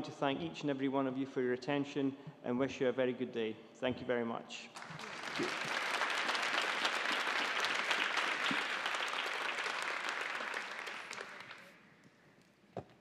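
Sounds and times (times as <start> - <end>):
audience applauding: 4.8 - 11.8.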